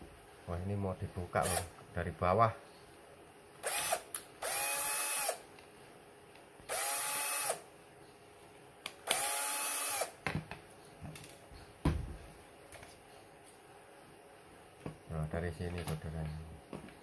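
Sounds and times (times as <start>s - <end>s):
electric screwdriver whining: 3.6s - 5.4s, 6.7s - 7.6s, 9.1s - 10.1s.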